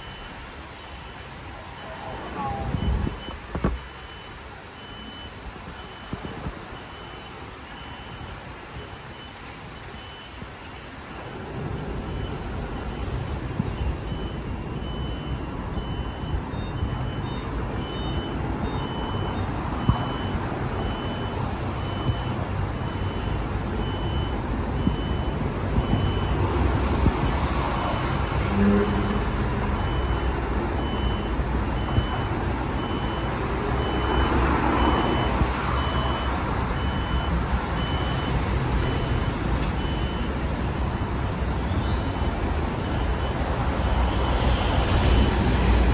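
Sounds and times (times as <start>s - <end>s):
reversing alarm beeps: 0.0s - 26.4s, 28.6s - 40.4s, 41.2s - 45.5s
street noise: 0.0s - 45.9s
vehicle rumble: 0.0s - 45.9s.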